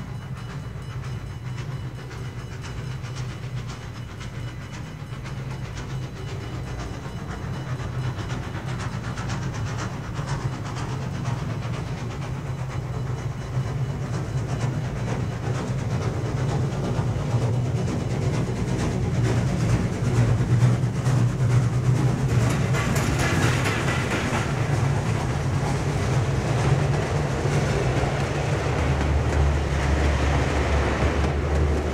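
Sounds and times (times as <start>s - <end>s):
model train wagons rumbling: 0.0s - 31.9s
wheels clicking on rails: 0.0s - 31.9s.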